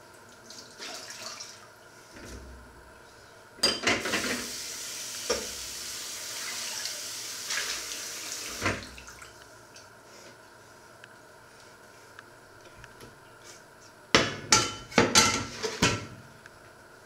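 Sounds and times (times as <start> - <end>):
tap water running: 0.0 - 2.4, 3.6 - 9.5.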